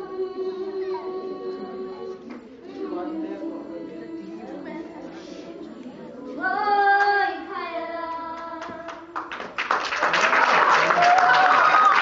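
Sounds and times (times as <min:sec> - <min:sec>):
child singing: 0:00.0 - 0:09.2
hand claps and applause: 0:08.4 - 0:12.0.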